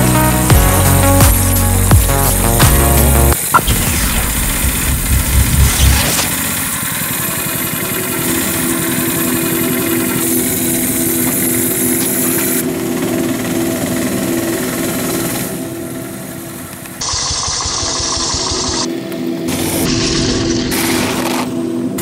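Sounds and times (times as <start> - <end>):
small engine pulsing: 0.4 - 22.0.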